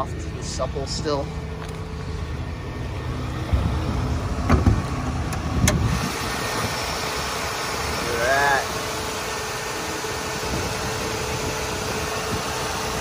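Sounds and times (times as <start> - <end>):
car engine idling: 0.0 - 13.0
car hood latch clunks: 4.4 - 5.9.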